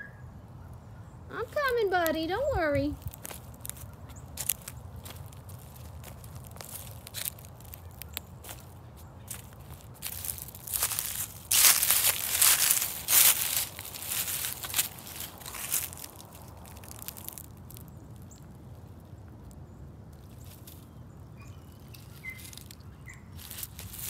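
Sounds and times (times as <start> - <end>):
faint bird chirps: 0.0 - 1.3, 19.7 - 23.5
footsteps crunching dry leaves: 1.4 - 24.0.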